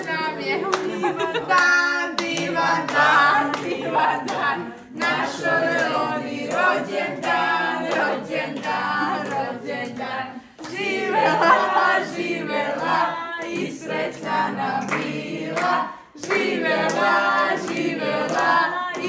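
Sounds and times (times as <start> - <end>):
hand clapping: 0.0 - 11.3, 12.7 - 19.0
group singing a birthday song: 0.0 - 19.0.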